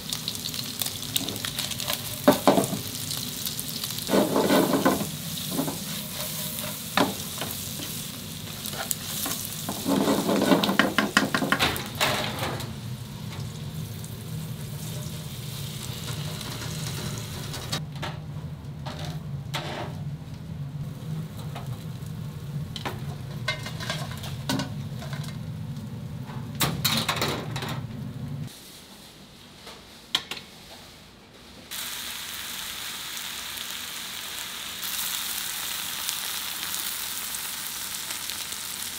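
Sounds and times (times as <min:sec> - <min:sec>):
meat sizzling: 0:00.0 - 0:12.0, 0:12.7 - 0:17.8, 0:31.7 - 0:38.9.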